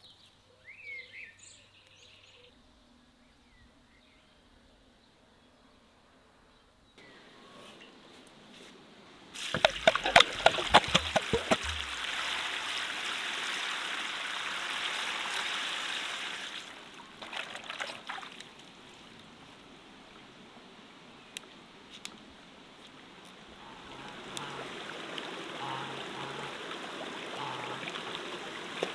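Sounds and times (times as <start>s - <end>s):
water pouring and splashing: 9.4s - 19.1s, 23.8s - 28.9s.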